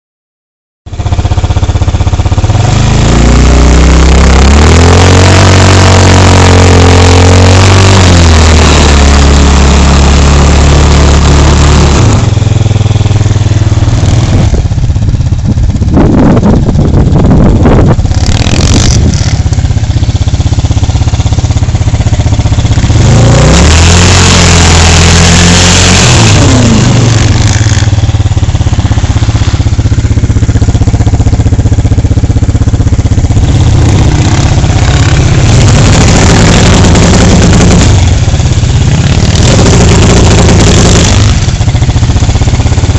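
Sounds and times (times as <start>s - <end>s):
quad engine revving hard: 2.5s - 14.7s, 15.8s - 19.6s, 21.5s - 29.6s, 33.3s - 42.9s.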